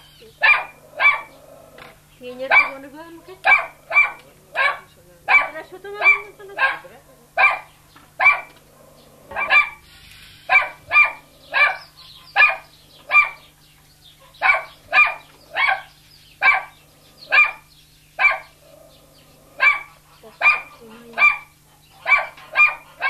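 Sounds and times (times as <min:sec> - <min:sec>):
dog yapping: 0:00.0 - 0:01.5, 0:02.4 - 0:09.8, 0:10.5 - 0:13.5, 0:14.2 - 0:18.8, 0:19.5 - 0:23.0.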